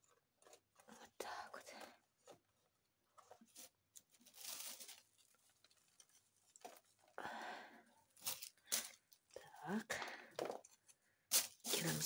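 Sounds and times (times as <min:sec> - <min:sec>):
soil rustling and crumbling: 0:03.2 - 0:06.9.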